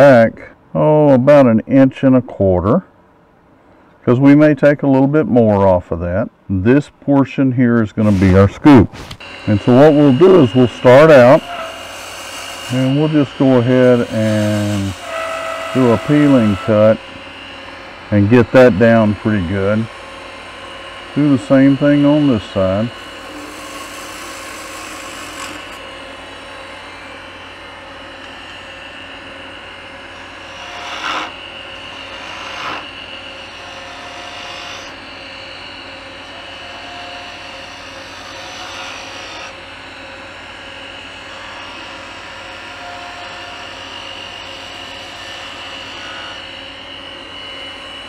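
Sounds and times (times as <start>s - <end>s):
loud scrapes: 8.0s - 9.3s
lathe humming: 8.0s - 48.0s
turning tool shaving wood: 9.2s - 48.0s.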